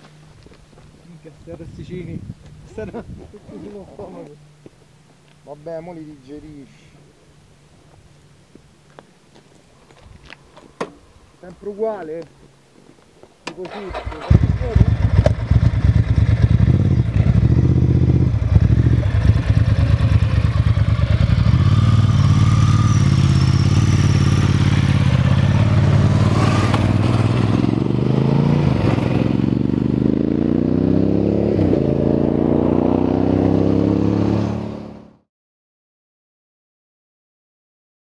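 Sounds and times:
motorcycle engines accelerating: 13.7s - 35.0s.

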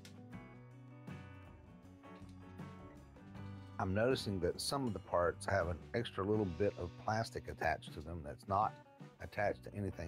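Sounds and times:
quiet background music: 0.0s - 10.0s.

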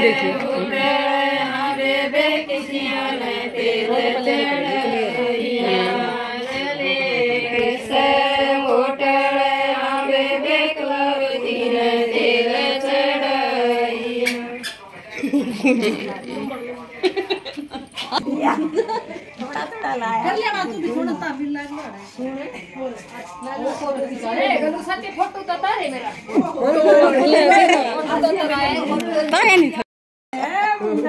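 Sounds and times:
women singing in unison: 0.0s - 14.6s.

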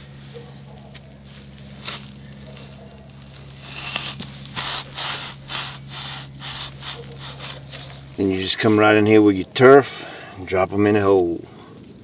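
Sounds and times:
steady low hum: 0.0s - 12.0s
turf cutter scraping through soil: 1.3s - 9.3s.

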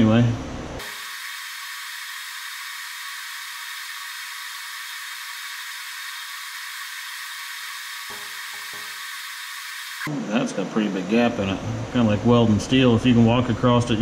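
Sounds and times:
butane soldering iron hissing: 0.8s - 10.1s.

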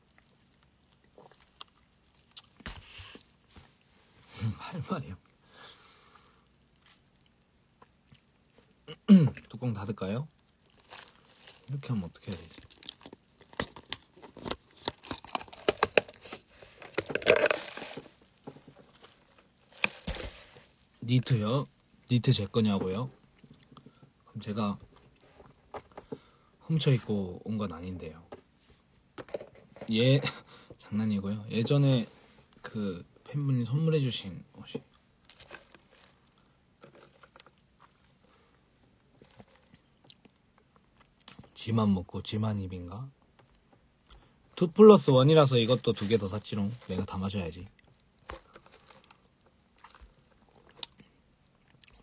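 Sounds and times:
plastic crinkling scrape: 2.6s - 3.4s, 10.7s - 20.9s, 35.3s - 38.0s, 48.2s - 50.8s
plastic clicks and crackles: 12.2s - 20.2s.

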